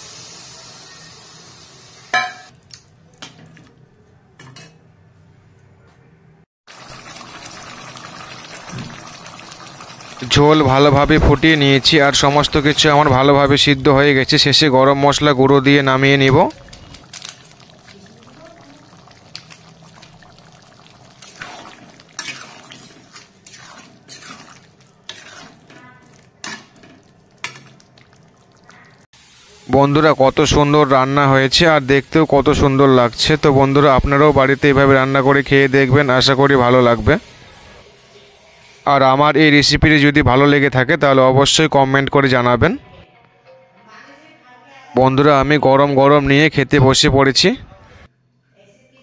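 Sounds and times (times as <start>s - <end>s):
curry boiling hiss: 0.0s - 2.1s, 6.7s - 13.6s, 16.5s - 25.7s, 28.2s - 39.0s
metal spatula scraping pan: 21.2s - 26.9s.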